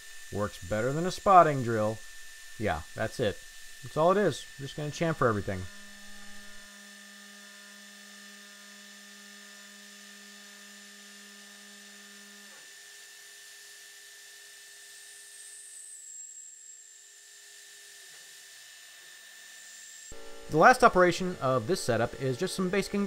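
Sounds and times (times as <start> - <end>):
milling machine whine: 0.0 - 12.9, 19.0 - 23.0.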